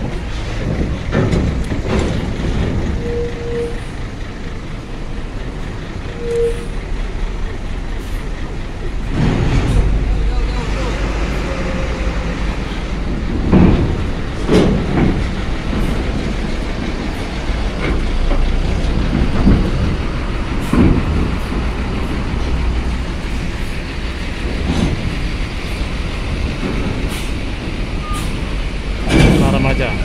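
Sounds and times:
bus engine rumbling: 0.0s - 30.0s
wheels clanking on metal plates: 0.0s - 30.0s.

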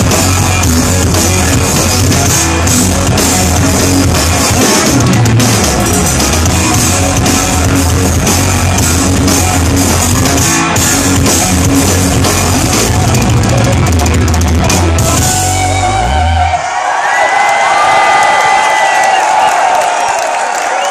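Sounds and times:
bass guitar: 0.0s - 16.7s
distorted electric guitar: 0.0s - 16.8s
pounding drum kit: 0.0s - 16.8s.

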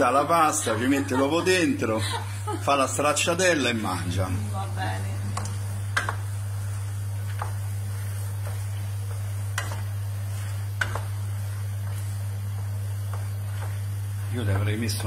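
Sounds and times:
faint sizzle: 0.0s - 15.0s
steady low hum: 0.0s - 15.0s
wooden spoon stirring pasta: 5.2s - 15.0s.

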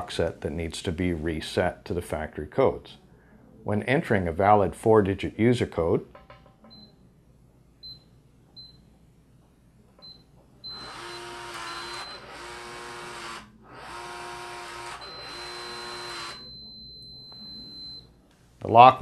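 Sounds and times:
lock motor running: 10.7s - 16.4s.

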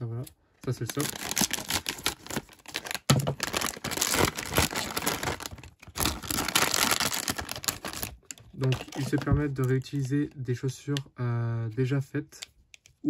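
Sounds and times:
plastic packaging crinkling: 0.6s - 10.1s.

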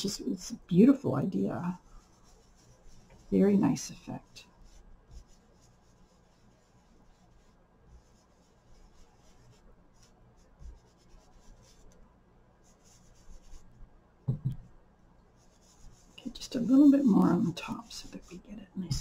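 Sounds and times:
brush rubbing paper: 0.0s - 13.9s, 15.3s - 19.0s
soft bumps against table: 14.3s - 14.7s.

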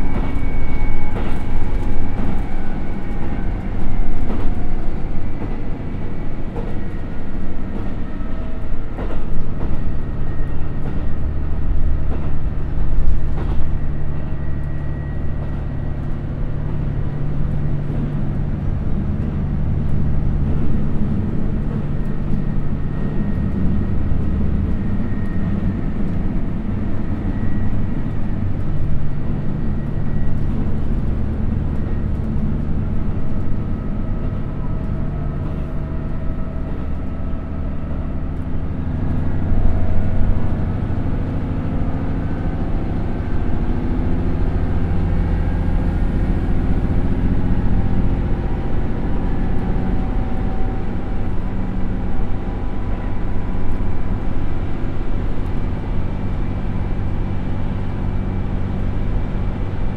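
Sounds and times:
diesel engine droning: 0.0s - 59.9s
train wheel and rail noise: 0.0s - 59.9s.

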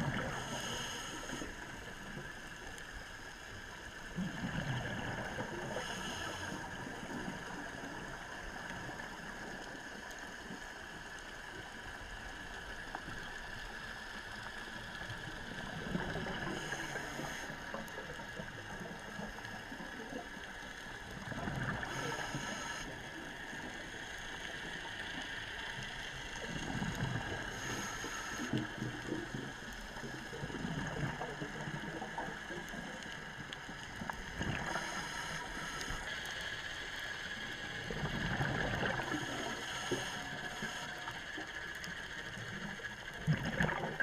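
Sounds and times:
diver breathing through regulator: 0.0s - 1.6s, 5.7s - 6.9s, 16.3s - 17.6s, 21.6s - 23.0s, 27.3s - 28.8s, 34.4s - 36.3s
exhaled bubbles gurgling: 0.0s - 2.3s, 4.1s - 9.6s, 15.2s - 20.4s, 21.0s - 24.0s, 26.2s - 36.0s, 37.6s - 41.2s, 42.3s - 44.0s
underwater hiss: 0.0s - 11.8s, 13.5s - 20.1s, 20.7s - 32.9s, 33.6s - 42.7s.

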